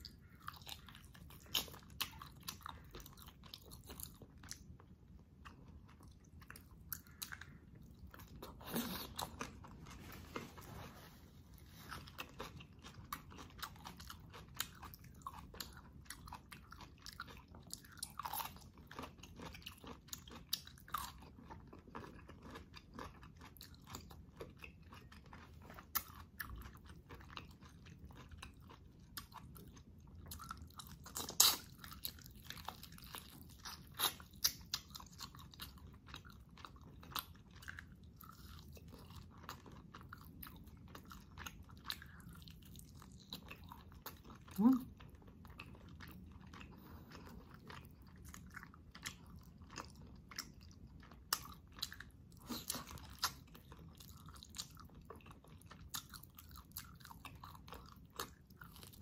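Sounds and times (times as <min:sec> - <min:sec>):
person chewing meat off bones: 0:00.0 - 0:10.4, 0:11.5 - 0:59.0.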